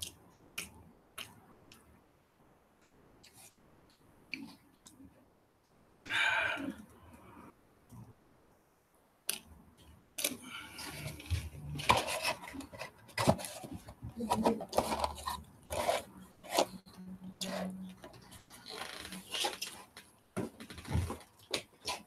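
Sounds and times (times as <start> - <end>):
cardboard box rustling and knocking: 20.4 - 21.3.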